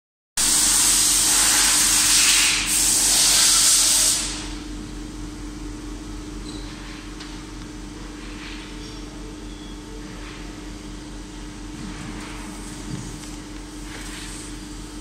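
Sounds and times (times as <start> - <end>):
loud steady hiss: 0.4 - 4.6
machine hum: 4.3 - 15.0.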